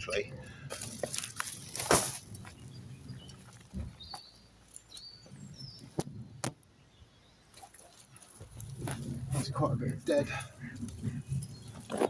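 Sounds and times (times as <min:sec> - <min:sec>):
plastic bag rustling: 0:00.7 - 0:02.6.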